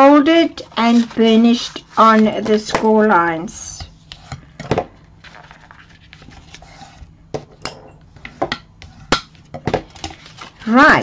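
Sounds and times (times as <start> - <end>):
paper rustling and scraping: 0.6 - 2.7, 5.2 - 7.1, 9.9 - 10.8.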